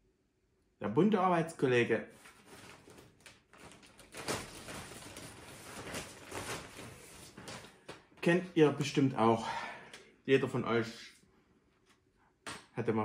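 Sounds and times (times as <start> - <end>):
plastic bag rustling: 2.1 - 8.0.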